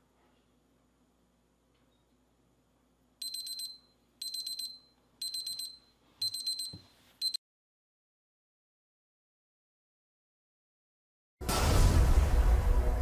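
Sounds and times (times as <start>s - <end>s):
timer alarm rapid beeps: 3.2s - 7.4s.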